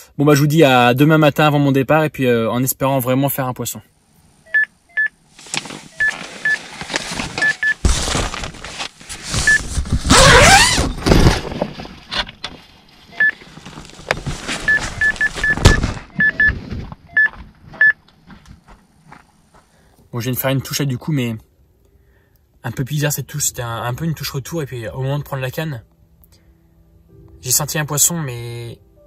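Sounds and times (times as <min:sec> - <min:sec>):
rustling and scraping: 0:05.3 - 0:19.8
bite alarm beeps: 0:14.7 - 0:18.0.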